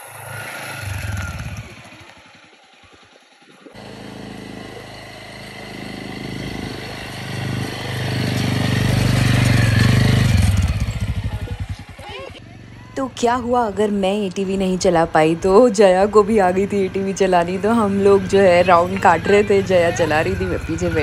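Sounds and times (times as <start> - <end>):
quad bike engine running: 0.0 - 21.0.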